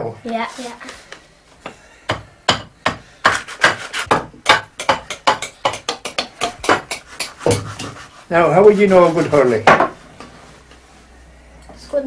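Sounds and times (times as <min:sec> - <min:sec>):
hand tool scraping wood: 0:03.2 - 0:04.2, 0:06.1 - 0:09.7.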